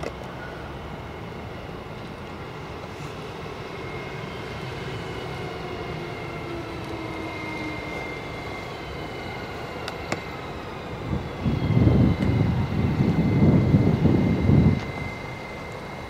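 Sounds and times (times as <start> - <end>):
electric train drive whining: 0.0 - 16.0
wind buffeting microphone: 6.0 - 16.0.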